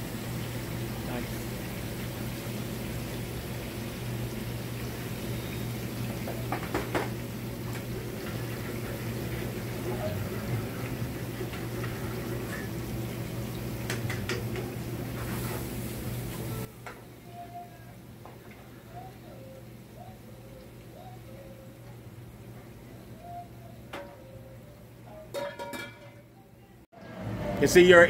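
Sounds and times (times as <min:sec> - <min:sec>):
gas range hum and hiss: 0:00.0 - 0:28.0
utensils scraping frying pan: 0:15.1 - 0:15.8.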